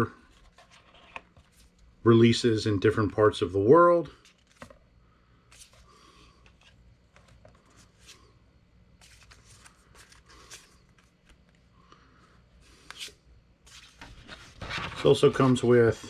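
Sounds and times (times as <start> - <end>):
cards swishing: 9.0 - 11.6.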